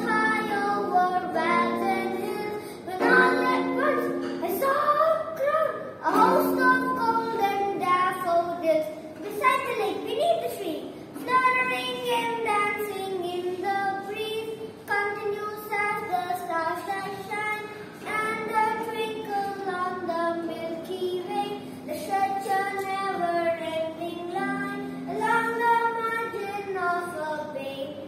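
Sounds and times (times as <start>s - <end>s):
low guitar notes: 0.0s - 5.0s, 6.1s - 8.8s
boy singing slow melody: 0.0s - 8.6s, 11.2s - 28.0s.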